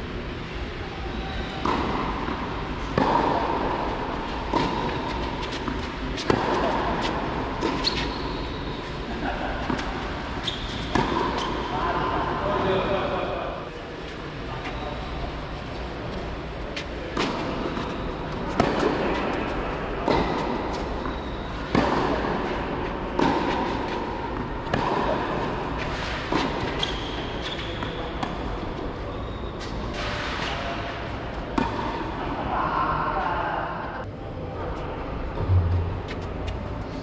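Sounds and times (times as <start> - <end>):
racket hitting tennis ball: 1.6 - 8.3, 9.2 - 11.8, 17.1 - 28.5, 31.6 - 32.1.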